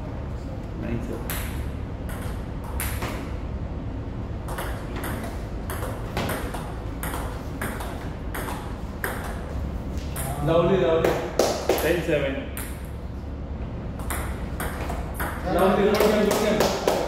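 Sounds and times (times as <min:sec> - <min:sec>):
table tennis ball hitting bats: 0:01.2 - 0:03.3, 0:04.4 - 0:10.4, 0:11.0 - 0:12.9, 0:13.9 - 0:17.0.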